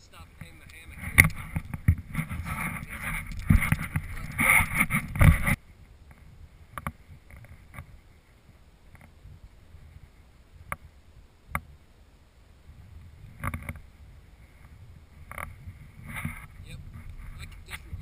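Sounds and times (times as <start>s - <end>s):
footsteps and gear knocks: 0.3s - 5.6s.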